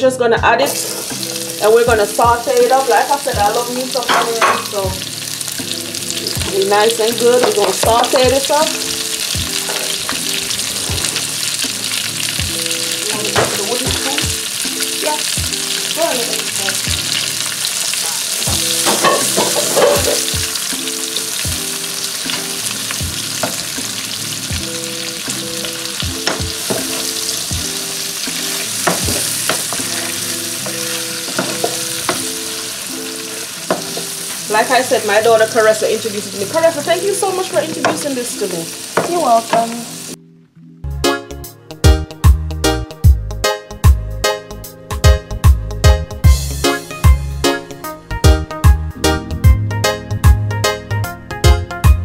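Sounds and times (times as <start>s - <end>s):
onions sizzling in hot oil: 0.7s - 40.2s
spoon knocking and scraping pan: 3.4s - 5.0s, 6.2s - 11.8s, 12.4s - 14.4s, 18.4s - 34.8s, 37.2s - 38.3s, 38.9s - 39.8s.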